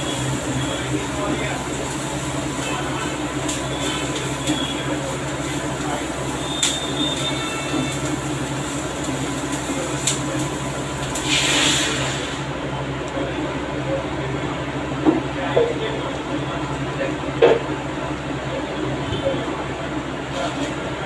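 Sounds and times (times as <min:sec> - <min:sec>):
steady hum: 0:00.0 - 0:21.0
brief hiss: 0:11.2 - 0:12.5.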